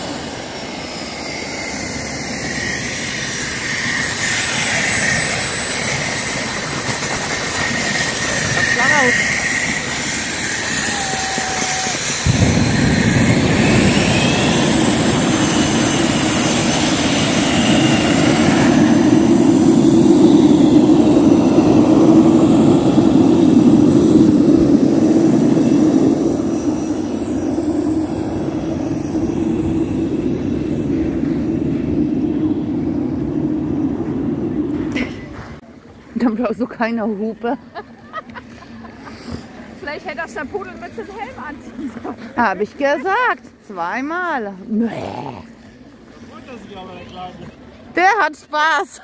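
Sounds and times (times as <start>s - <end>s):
loud jet roar: 0.0s - 35.5s
jet turbine whine: 0.0s - 35.8s.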